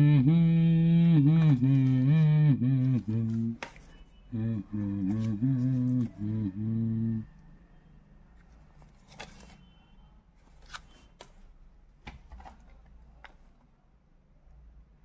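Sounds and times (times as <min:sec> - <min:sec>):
man humming: 0:00.0 - 0:07.4.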